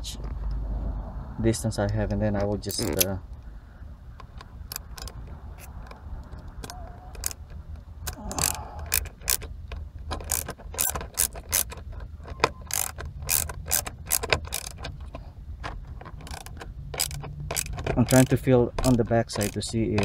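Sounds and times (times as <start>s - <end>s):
screwdriver metal clicks: 8.4s - 14.9s.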